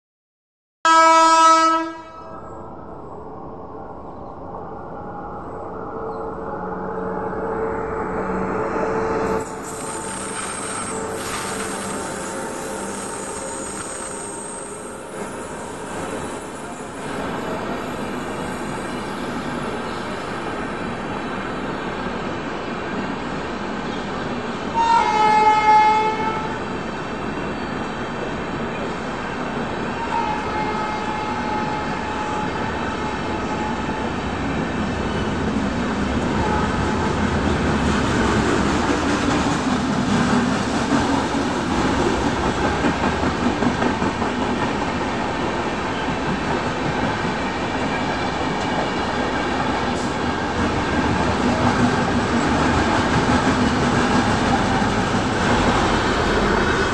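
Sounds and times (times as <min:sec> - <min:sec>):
train wheels rumbling on rails: 0:05.3 - 0:56.9
clickety-clack over rail joints: 0:37.3 - 0:47.5, 0:49.6 - 0:56.9.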